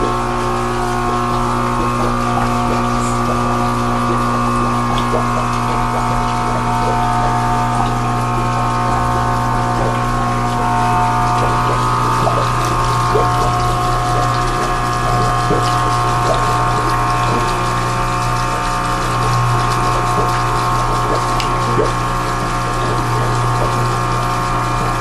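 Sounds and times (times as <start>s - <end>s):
water noise: 0.0s - 25.0s
water pump humming: 0.0s - 25.0s.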